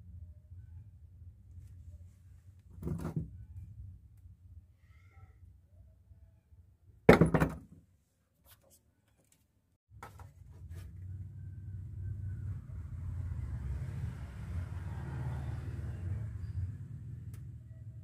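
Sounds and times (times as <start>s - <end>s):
loud thunk: 7.1s - 7.7s.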